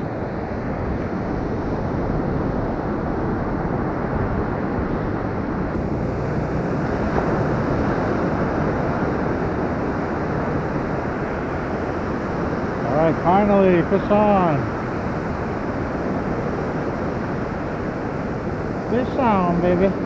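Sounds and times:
ocean surf washing: 0.0 - 20.0
wind buffeting microphone: 0.0 - 20.0.

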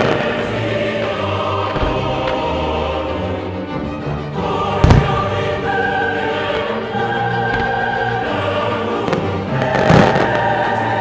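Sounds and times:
choir singing sustained notes: 0.0 - 11.0
firework bursting with loud bang: 4.8 - 5.3.

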